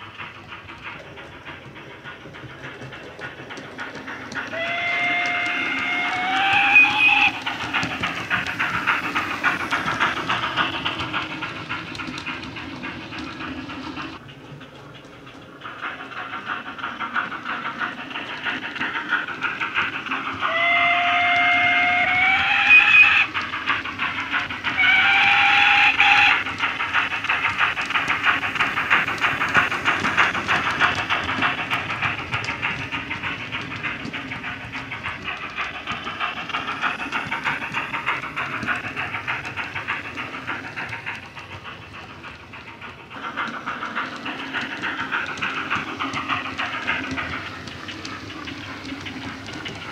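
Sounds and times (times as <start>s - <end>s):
steam locomotive exhaust chuffs: 0.0s - 49.9s
locomotive whistle blasts: 4.6s - 7.4s, 20.5s - 23.2s.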